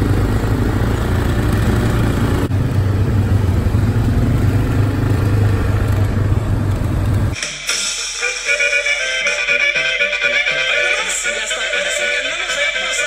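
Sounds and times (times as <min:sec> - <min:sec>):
quad bike engine droning: 0:00.0 - 0:07.4.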